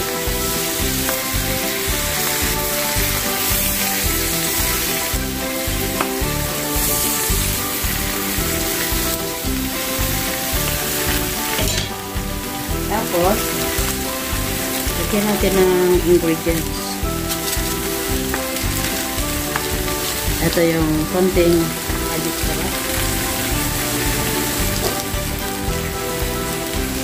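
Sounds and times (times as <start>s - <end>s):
background music with beat: 0.0s - 27.0s
leaves sizzling in hot oil: 0.0s - 27.0s
wooden spatula stirring: 12.5s - 27.0s.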